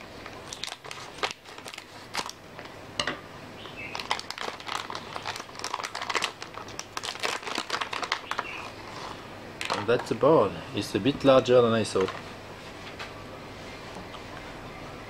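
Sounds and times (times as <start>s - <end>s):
plastic bag crinkling: 0.0s - 2.8s, 3.7s - 10.2s.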